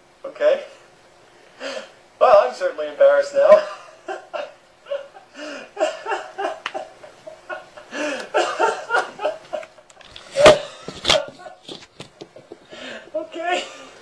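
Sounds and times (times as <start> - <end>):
loud puffs of breath: 1.5 - 2.0
breathy laughter: 3.6 - 11.6.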